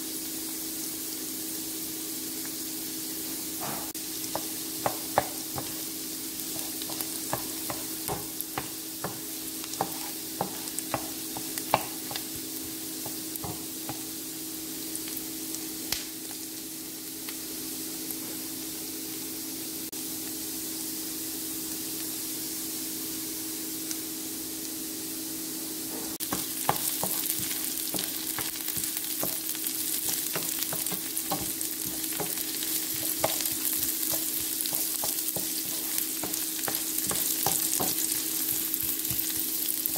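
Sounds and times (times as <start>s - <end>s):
onion sizzling in hot oil: 0.0s - 39.9s
wooden spatula scraping pan: 6.5s - 12.4s, 26.0s - 39.9s.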